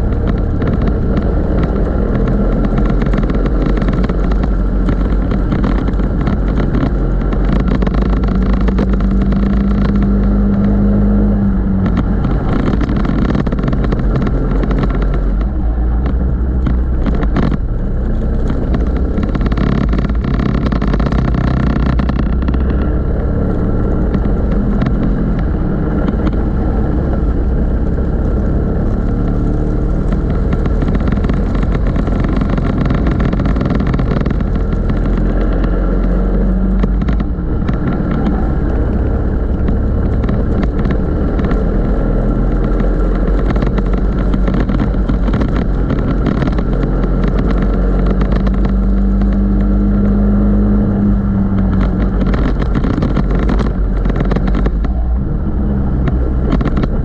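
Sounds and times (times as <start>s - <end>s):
go-kart engine racing: 0.0s - 57.0s.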